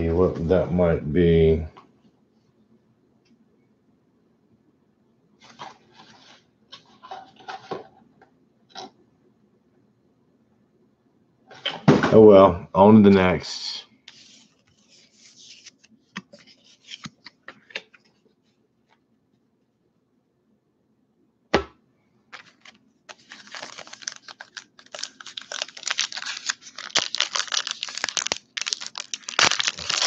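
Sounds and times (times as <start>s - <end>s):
cards clicking and rustling: 15.5s - 18.1s, 22.3s - 30.0s
foil wrapper crinkling and tearing: 22.4s - 30.0s.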